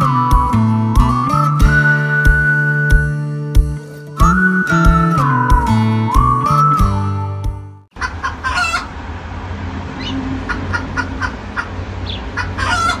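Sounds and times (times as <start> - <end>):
background music: 0.0 - 7.8
animal calls: 8.0 - 8.9, 9.9 - 13.0
low hum: 8.9 - 12.1.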